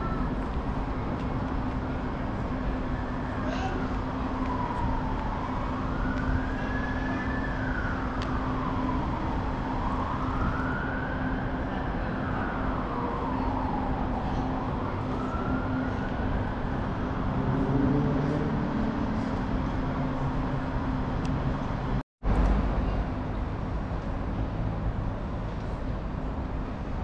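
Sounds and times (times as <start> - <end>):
distant emergency siren wailing: 0.0 - 0.6, 1.7 - 22.0
city background hum: 0.0 - 27.0.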